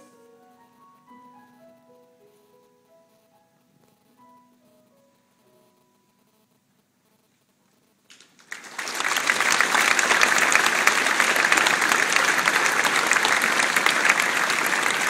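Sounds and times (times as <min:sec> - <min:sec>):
large audience applauding: 0:08.1 - 0:15.0.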